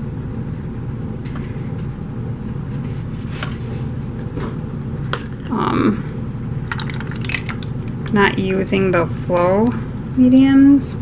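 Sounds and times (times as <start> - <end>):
steady low hum: 0.0 - 11.0
plastic cups clicking: 6.7 - 8.2.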